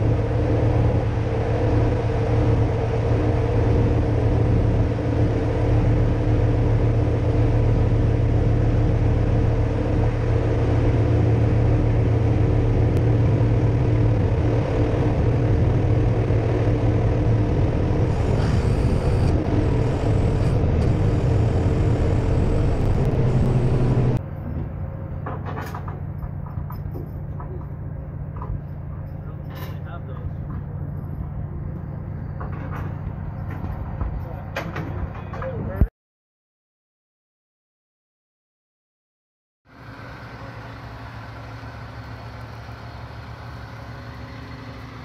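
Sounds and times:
truck engine humming: 0.0s - 24.5s, 39.7s - 45.0s.

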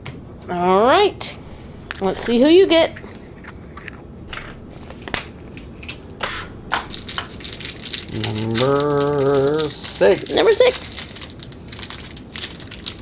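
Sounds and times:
plastic wrapper crackling: 4.7s - 13.0s.

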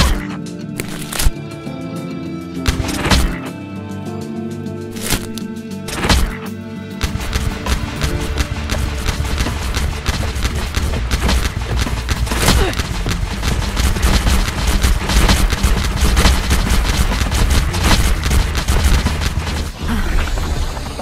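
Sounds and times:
balls popping and thudding: 2.7s - 3.4s, 5.0s - 19.8s
steady low rumble: 7.0s - 21.0s.

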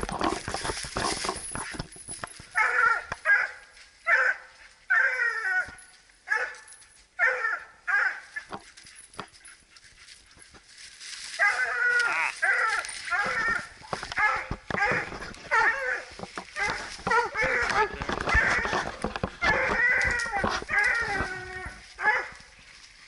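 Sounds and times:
dry leaves rustling: 0.0s - 23.0s
hounds barking: 2.5s - 8.6s, 11.4s - 22.5s.

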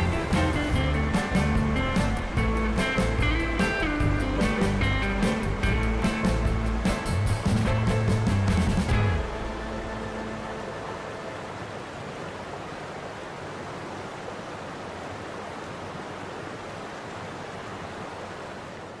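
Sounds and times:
outdoor ambience hiss: 0.0s - 19.0s.

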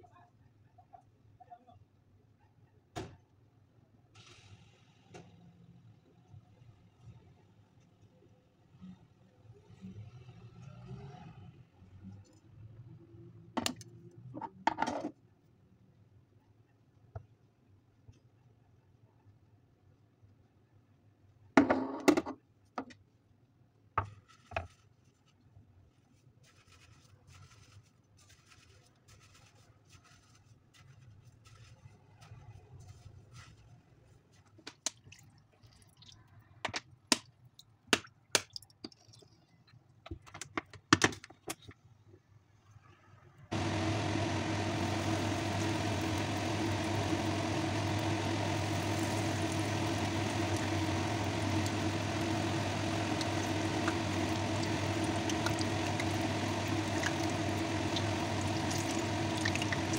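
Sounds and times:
deep-frying sizzle: 43.5s - 59.9s.

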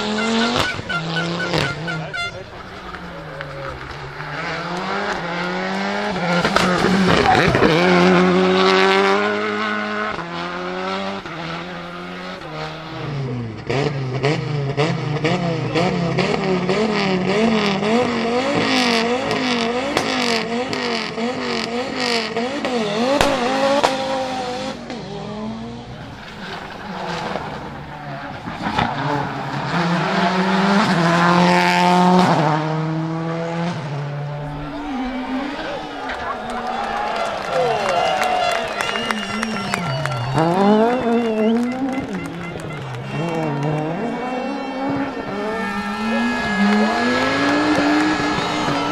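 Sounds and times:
car engine revving with cracks: 0.0s - 48.9s
rally car accelerating: 0.0s - 48.9s.

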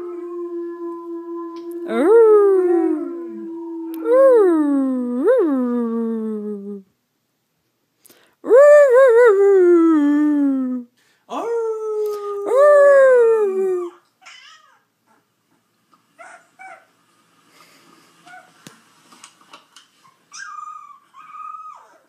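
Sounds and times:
dog whimpering: 20.3s - 22.0s.

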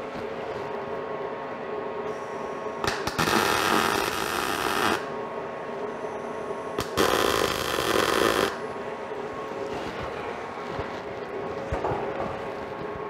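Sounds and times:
steady hum: 0.0s - 13.0s
welder arc crackling: 2.8s - 5.1s, 6.8s - 8.7s.

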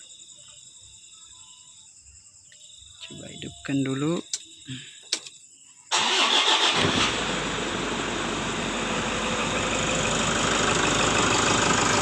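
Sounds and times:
diesel engine idling: 5.9s - 12.0s.

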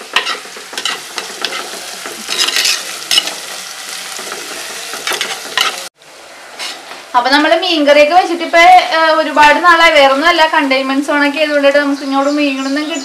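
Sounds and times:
food sizzling in oil: 0.0s - 12.7s
spoon scraping a clay pot: 0.2s - 3.4s.

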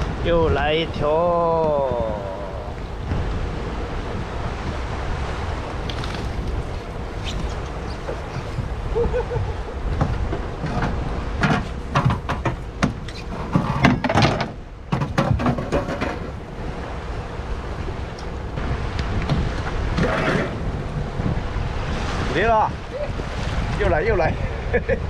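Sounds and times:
sea noise: 0.0s - 25.0s
wind buffeting microphone: 0.0s - 25.0s
sharp knocks and clatter: 10.0s - 16.4s.

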